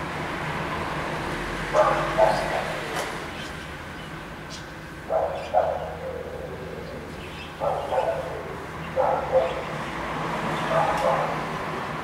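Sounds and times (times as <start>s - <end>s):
dogs barking: 1.7s - 3.1s, 5.0s - 9.9s, 10.5s - 11.6s.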